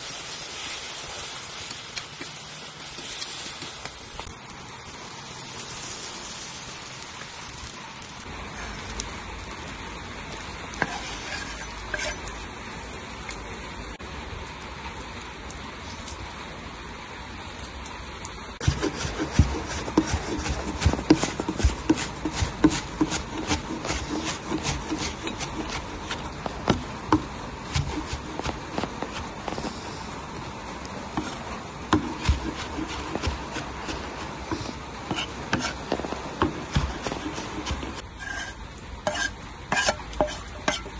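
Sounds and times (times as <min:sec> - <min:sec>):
steady hiss: 0:00.0 - 0:40.9
knife chopping on wooden board: 0:18.6 - 0:29.3, 0:31.2 - 0:38.5.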